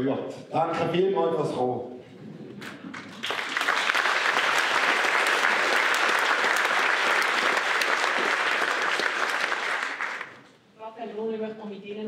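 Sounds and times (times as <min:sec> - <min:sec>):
audience applauding: 0:02.6 - 0:10.5.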